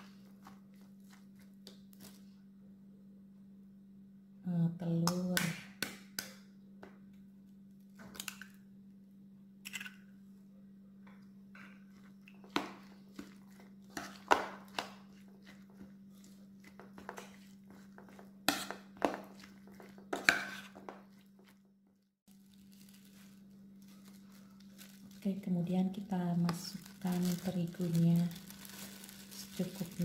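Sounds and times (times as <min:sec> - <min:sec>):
spoon scraping ceramic bowl: 0:15.1 - 0:21.3.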